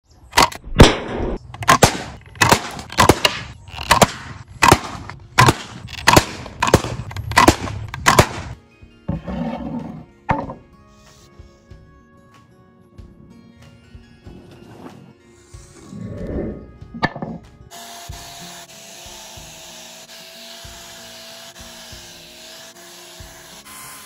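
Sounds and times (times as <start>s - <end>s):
slingshot crossbow shots snapping: 0.3s - 8.6s
shots striking target: 0.4s - 8.6s.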